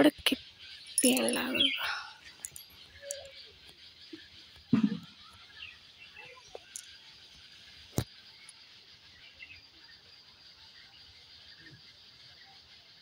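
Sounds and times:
faint bird chirps: 0.0s - 13.0s
loud low thump: 4.8s - 5.1s.

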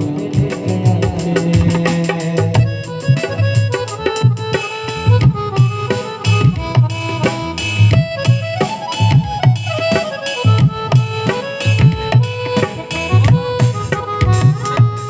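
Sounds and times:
dholak and percussion rhythm: 0.0s - 15.0s
keyboard melody: 0.0s - 15.0s.

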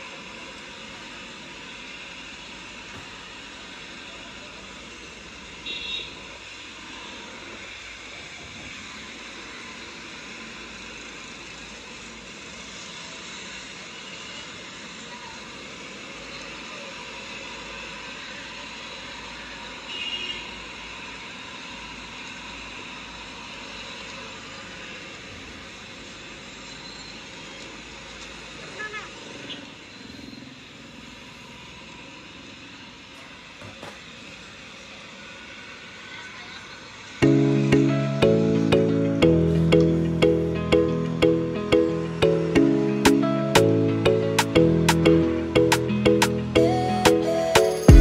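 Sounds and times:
high-pitched tone: 37.2s - 48.0s.

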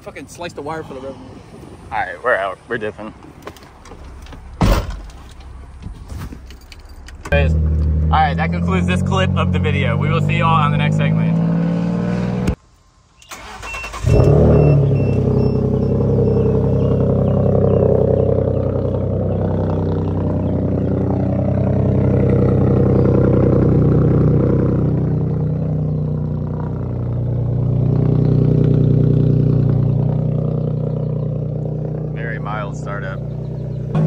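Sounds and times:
truck engine starting and droning: 6.5s - 12.6s, 13.2s - 34.0s.

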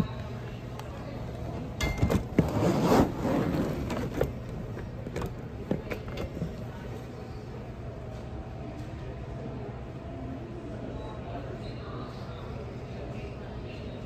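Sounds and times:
suitcase clattering on wire cart: 1.8s - 4.4s.

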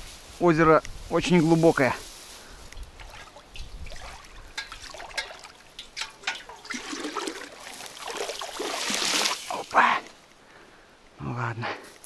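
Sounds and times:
bucket splashing in water: 3.0s - 9.7s.

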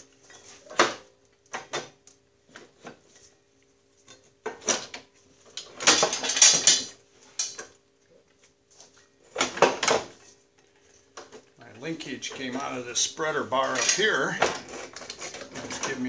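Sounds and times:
metal parts clinking and knocking: 5.6s - 7.7s, 13.6s - 16.0s.

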